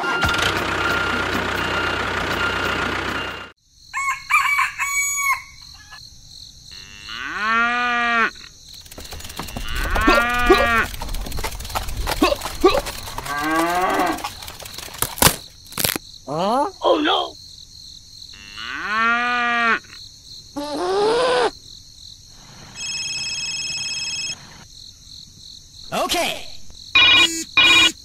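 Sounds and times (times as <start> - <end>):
cow mooing: 6.8 - 8.5, 9.5 - 10.9, 13.2 - 14.3, 18.4 - 20.0
sharp clicks: 8.8 - 16.0.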